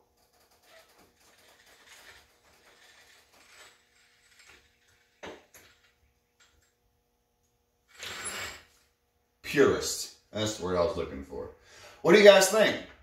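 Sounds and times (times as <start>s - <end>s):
lift jack rattling and creaking: 0.2s - 5.9s.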